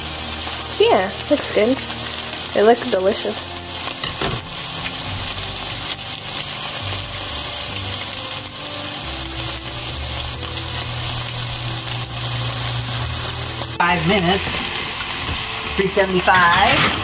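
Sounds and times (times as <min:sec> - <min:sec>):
meat sizzling in a skillet: 0:00.0 - 0:17.0.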